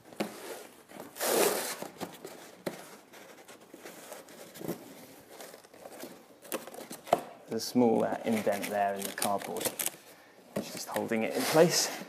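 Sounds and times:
cardboard scraping rustle: 0.1s - 7.0s, 10.6s - 12.0s.

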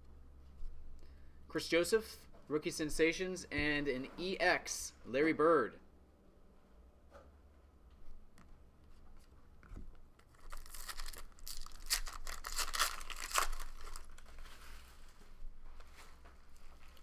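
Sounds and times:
wrapper tearing and crinkling: 10.3s - 14.4s.

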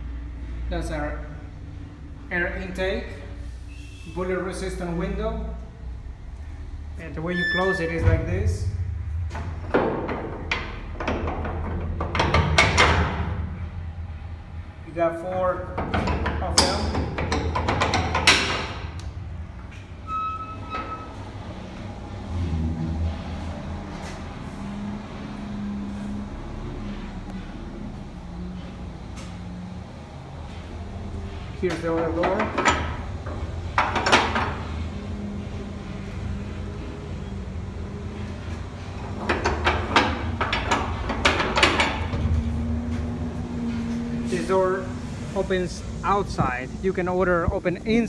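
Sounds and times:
steady low hum: 0.0s - 20.0s
low steady rumble: 4.6s - 48.0s
short high squeak: 7.3s - 8.0s, 20.0s - 21.2s
metal door bolts clicking and knocking: 9.4s - 13.5s, 15.7s - 19.0s, 32.0s - 34.6s, 39.2s - 42.3s.

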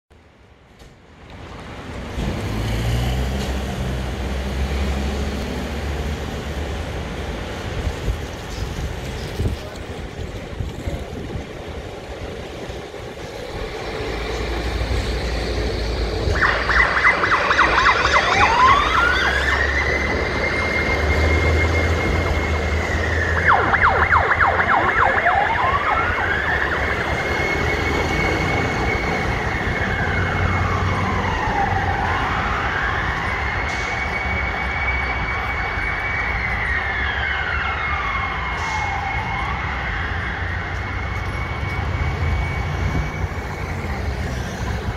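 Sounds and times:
truck engine rumble: 1.4s - 36.5s
fire truck siren: 12.7s - 44.9s.

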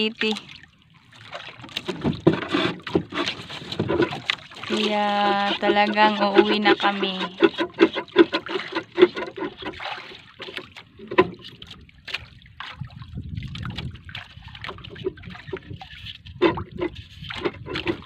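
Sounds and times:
water splashing against boat hull: 0.0s - 18.0s.

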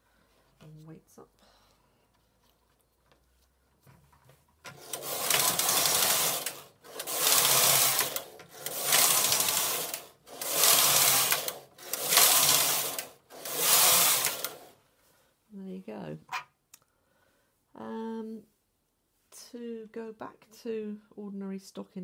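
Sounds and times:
knitting machine carriage clatter: 4.6s - 14.7s.

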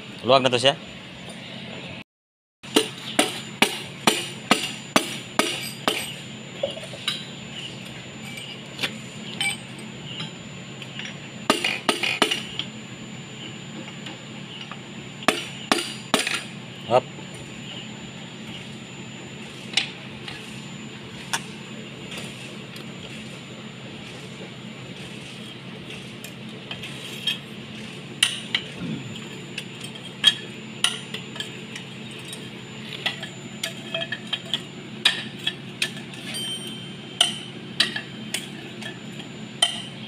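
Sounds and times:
hammer tapping metal: 2.7s - 6.1s.

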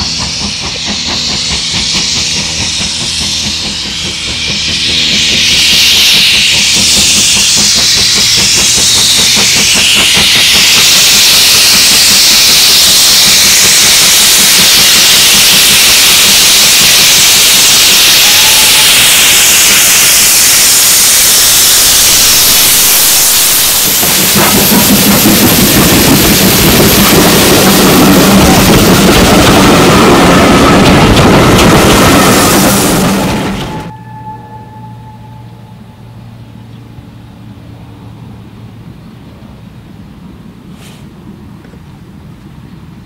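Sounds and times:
rapid exhaust beats: 0.0s - 33.1s
loud steam hiss: 0.0s - 33.9s, 40.7s - 41.2s
train wheels rumbling: 0.0s - 43.0s.

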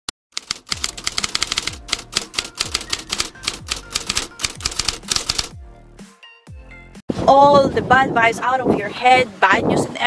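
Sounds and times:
typewriter keys clacking: 0.4s - 5.6s.

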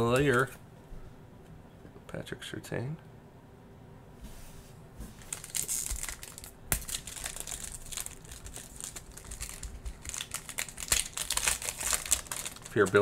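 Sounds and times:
foil wrapper crinkling: 5.2s - 13.0s
foil wrapper tearing: 5.2s - 13.0s.

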